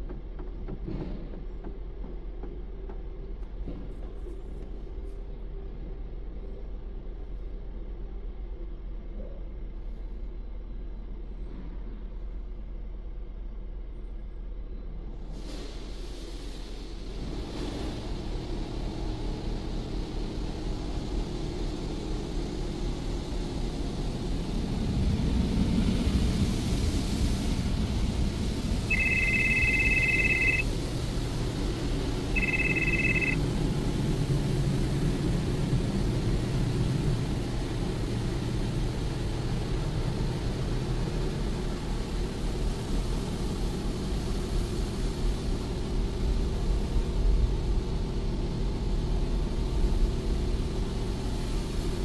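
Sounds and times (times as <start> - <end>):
car wash machinery rumble: 15.4 - 52.0
electronic beeps: 28.9 - 30.6, 32.4 - 33.4.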